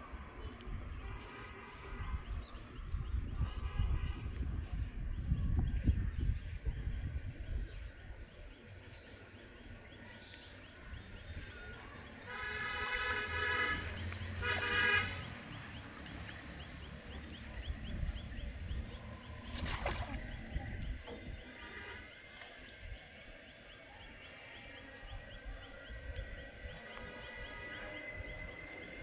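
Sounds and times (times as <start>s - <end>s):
wind noise on microphone: 0.0s - 8.4s, 19.5s - 21.5s
vehicle horn honking: 12.3s - 15.3s, 21.5s - 22.1s.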